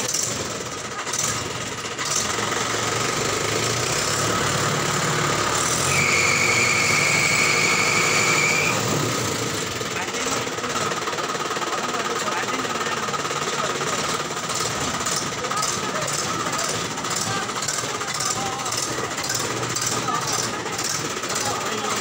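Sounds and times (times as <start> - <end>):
tractor engine running: 0.0 - 22.0
high-pitched squeal: 5.5 - 9.1.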